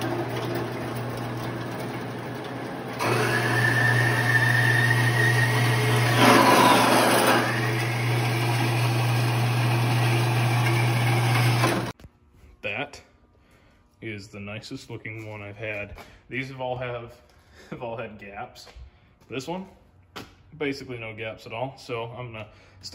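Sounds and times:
bandsaw motor hum: 0.0 - 11.9
bandsaw blade whine cutting steel: 3.0 - 11.9.

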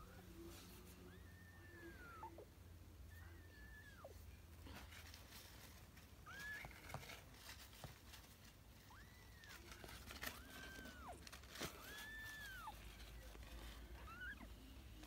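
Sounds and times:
soft rustles: 0.0 - 2.3, 3.8 - 15.0
kittens mewing: 1.0 - 5.2, 8.9 - 15.0.

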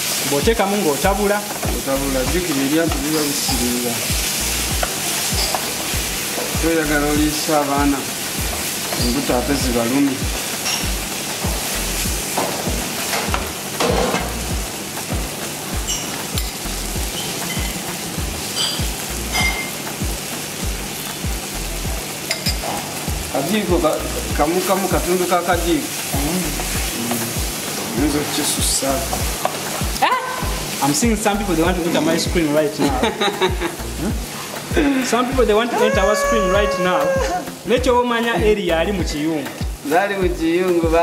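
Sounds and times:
vegetables sizzling in oil: 0.0 - 41.0.

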